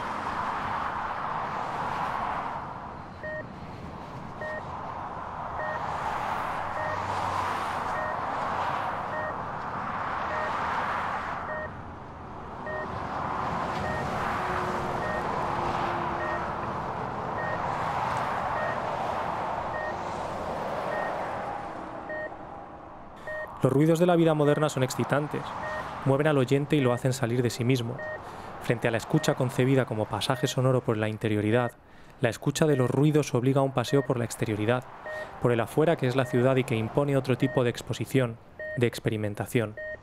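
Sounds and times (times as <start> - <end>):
street traffic: 0.0 - 40.0
reversing alarm beeping: 4.4 - 4.6, 5.6 - 5.8, 6.8 - 7.0, 9.1 - 9.4, 10.3 - 10.6, 11.5 - 11.7, 12.7 - 12.9, 13.8 - 14.1, 15.0 - 15.2, 16.2 - 16.4, 17.4 - 17.6, 18.6 - 18.8, 23.2 - 23.5, 25.6 - 25.8, 28.0 - 28.2, 33.9 - 34.2, 35.1 - 35.3.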